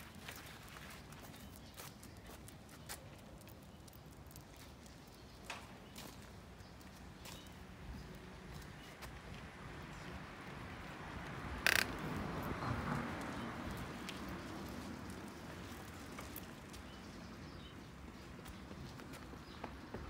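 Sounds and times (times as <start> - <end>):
dog claws clicking on stone: 11.6 - 12.0.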